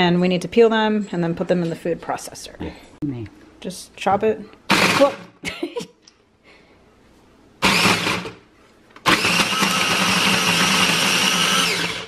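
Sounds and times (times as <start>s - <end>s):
food processor chopping: 4.7s - 5.2s, 7.6s - 8.4s, 9.0s - 12.0s.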